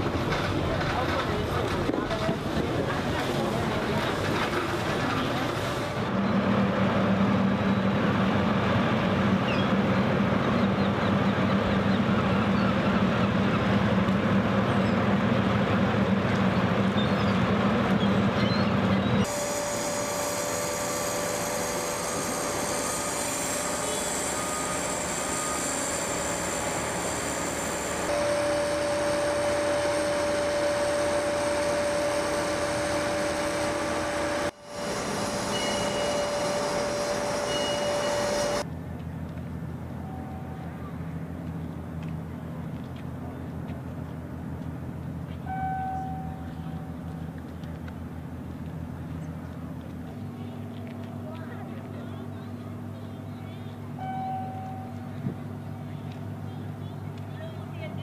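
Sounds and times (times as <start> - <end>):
machinery hum: 0.0 - 38.7
high whining machinery: 19.2 - 38.7.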